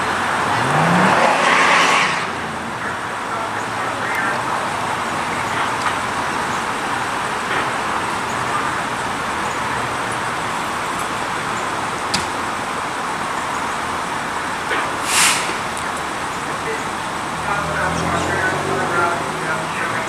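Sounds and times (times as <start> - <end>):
road traffic: 0.0 - 20.0
short sharp hiss: 15.0 - 15.7.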